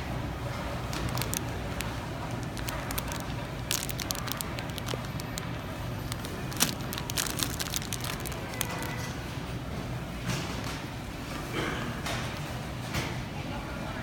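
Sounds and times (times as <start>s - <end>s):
cellophane wrapping crinkling: 0.8s - 9.3s.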